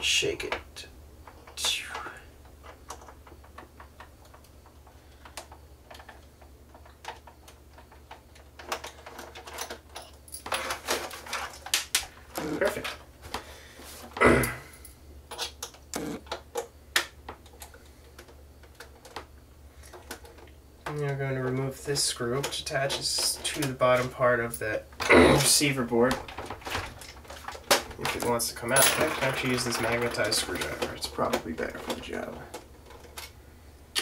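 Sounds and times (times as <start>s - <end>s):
plastic clicks and rattles: 1.2s - 13.4s, 15.3s - 21.8s.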